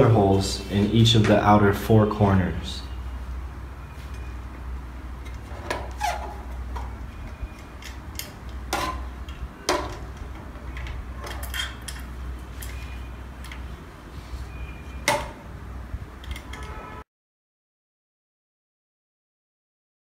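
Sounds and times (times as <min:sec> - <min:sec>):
metal hardware clicks and knocks: 0:06.8 - 0:13.7, 0:16.2 - 0:16.8.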